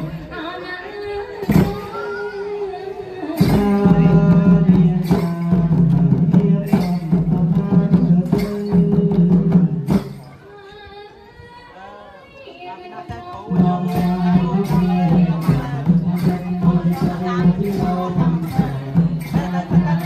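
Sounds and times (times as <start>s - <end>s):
drum strokes: 3.2s - 10.4s, 13.5s - 20.0s.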